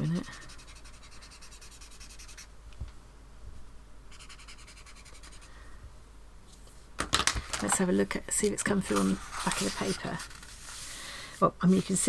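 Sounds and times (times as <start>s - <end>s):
marker rubbing on paper: 0.0s - 2.5s, 4.1s - 5.5s.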